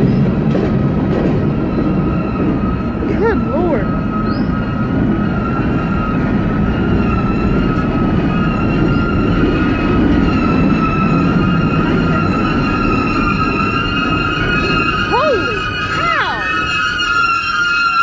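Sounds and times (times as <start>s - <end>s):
train wheels rumbling on rails: 0.0s - 18.0s
high-pitched squeal of running gear: 3.9s - 18.0s.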